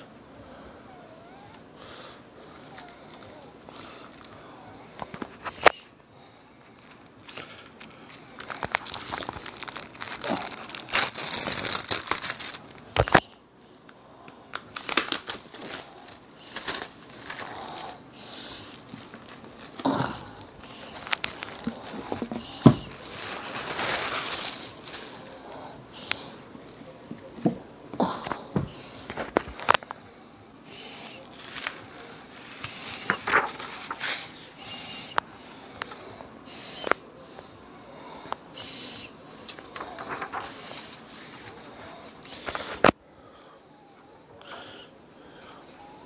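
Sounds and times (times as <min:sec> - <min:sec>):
plastic wrap crinkling and tearing: 0:02.4 - 0:04.4, 0:06.6 - 0:27.6, 0:28.6 - 0:30.0, 0:31.0 - 0:34.4, 0:39.0 - 0:43.0.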